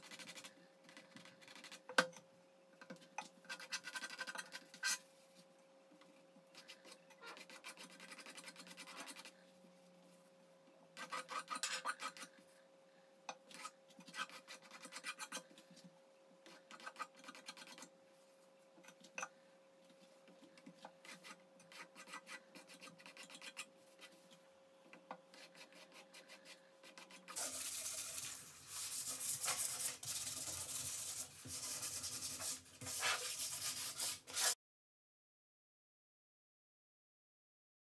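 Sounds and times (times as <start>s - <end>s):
palette knife scraping canvas: 13.5s - 15.5s, 21.0s - 24.2s, 25.3s - 34.6s
sandpaper rubbing: 25.4s - 34.6s.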